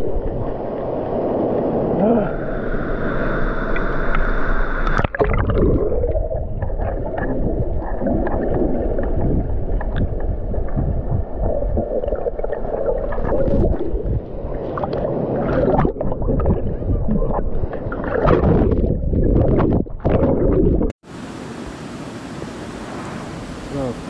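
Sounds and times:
muffled underwater rumble: 2.0 - 20.9
water splashing: 3.7 - 21.0.

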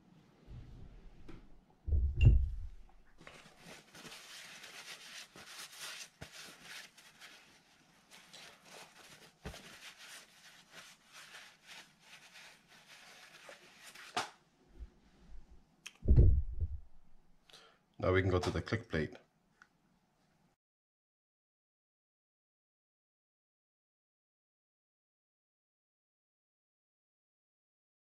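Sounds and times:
towel rubbing and rustling: 1.9 - 14.3
thump: 16.0 - 16.8.

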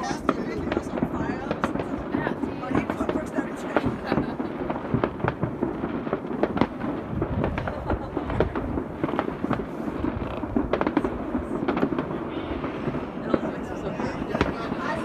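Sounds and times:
fireworks bangs and crackles: 0.0 - 15.0.

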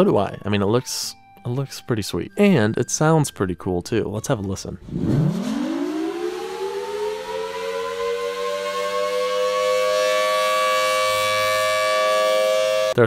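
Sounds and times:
electromechanical siren wailing: 4.8 - 13.0.

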